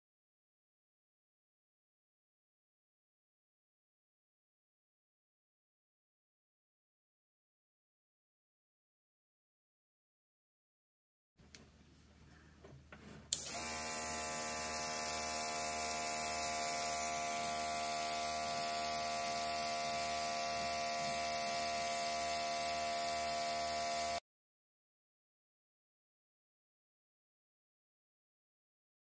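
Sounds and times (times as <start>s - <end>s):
compressor motor buzzing hum: 13.3s - 24.2s
airbrush air hiss: 14.6s - 24.2s.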